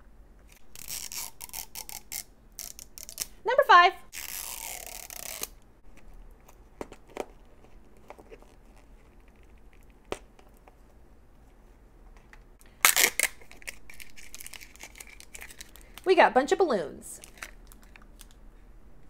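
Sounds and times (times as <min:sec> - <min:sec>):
plastic crinkling: 0:12.7 - 0:16.1, 0:17.2 - 0:18.4.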